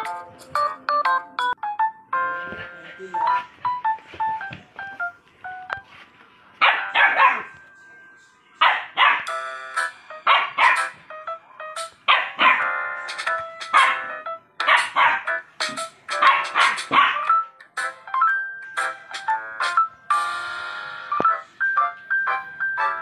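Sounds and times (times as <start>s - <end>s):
simple melody: 0.0s - 6.0s, 9.2s - 23.0s
puppies barking: 6.6s - 7.6s, 8.6s - 9.4s, 10.3s - 11.0s, 12.0s - 13.0s, 13.7s - 15.4s, 16.2s - 17.4s.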